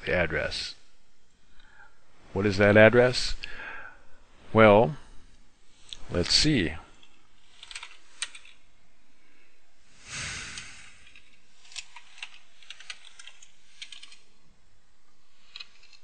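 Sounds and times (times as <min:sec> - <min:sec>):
computer keyboard keystrokes: 0:11.8 - 0:14.2.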